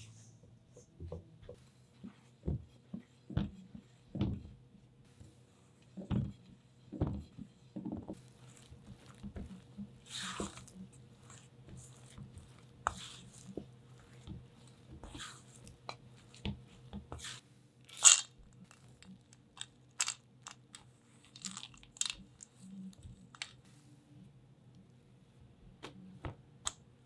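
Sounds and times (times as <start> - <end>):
spatula scraping dough in bowl: 7.6 - 17.4.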